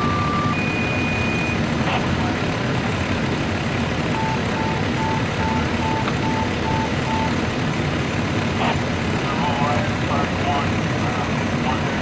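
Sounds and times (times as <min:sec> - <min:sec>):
short electronic warning beeps: 0:00.0 - 0:01.6, 0:04.1 - 0:07.4
vehicle engine running: 0:00.0 - 0:12.0.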